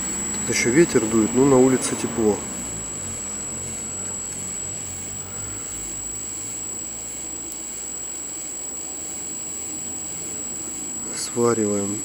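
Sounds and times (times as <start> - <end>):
high steady whine: 0.0 - 12.0.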